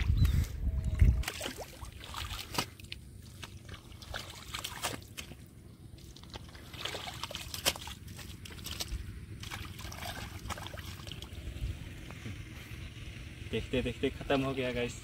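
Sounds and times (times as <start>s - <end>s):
hands squelching wet mud: 0.0s - 11.4s
trickling water: 0.9s - 12.0s
small water splashes: 1.0s - 11.6s.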